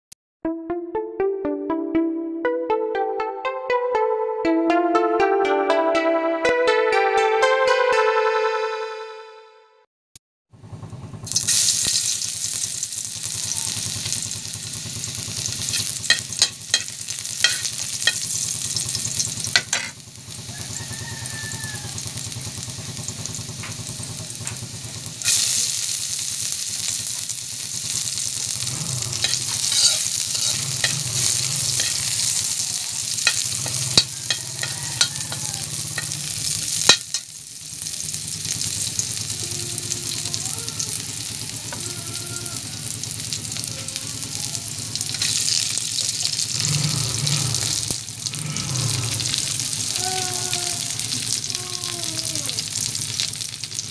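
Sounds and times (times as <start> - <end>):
garlic and onion sizzling in oil: 11.2 - 53.9
metal spatula scraping a wok: 28.9 - 37.3, 45.1 - 45.6.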